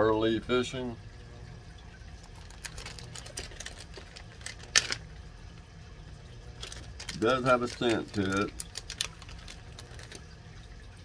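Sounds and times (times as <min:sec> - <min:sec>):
plastic package crinkling: 0:02.2 - 0:05.0, 0:06.6 - 0:10.4.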